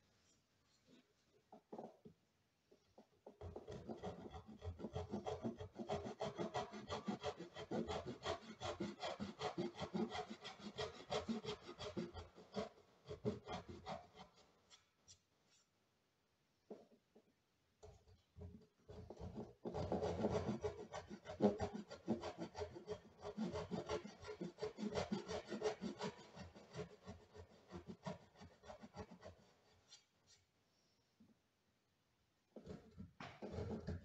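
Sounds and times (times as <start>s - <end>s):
hand saw cutting wood: 3.4s - 14.5s, 18.9s - 29.9s, 32.6s - 34.0s.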